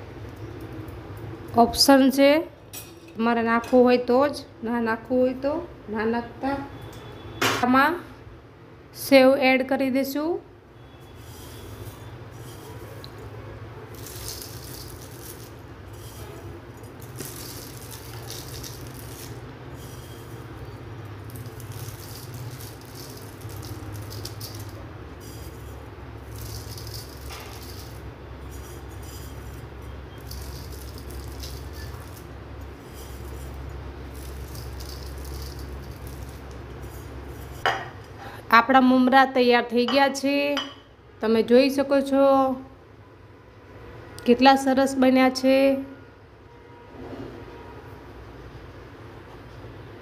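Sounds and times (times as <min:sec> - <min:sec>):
fried snack rustling into bowl: 0:13.9 - 0:37.6.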